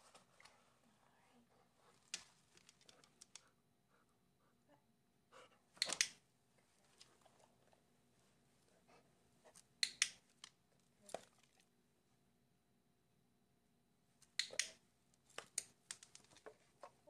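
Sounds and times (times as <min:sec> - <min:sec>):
training clicker clicks: 0:05.8 - 0:06.2, 0:09.8 - 0:10.6, 0:14.2 - 0:14.8.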